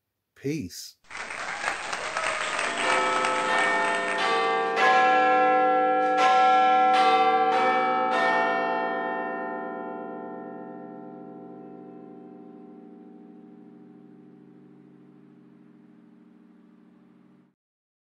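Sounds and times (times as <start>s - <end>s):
bell-like chimes jingle: 2.9s - 10.8s.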